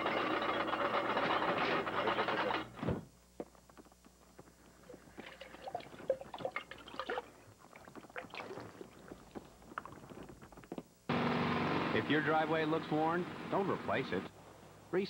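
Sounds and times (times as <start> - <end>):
drink pouring: 4.9 - 10.2
glugs and swallows: 4.9 - 10.6.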